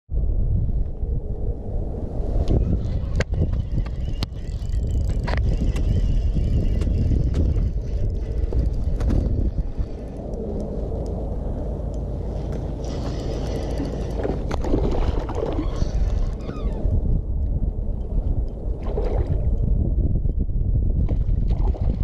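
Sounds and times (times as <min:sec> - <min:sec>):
wind rumbling on microphone: 0:00.1 - 0:22.0
fishing reel clicks and knocks: 0:03.0 - 0:11.2, 0:11.9 - 0:14.6.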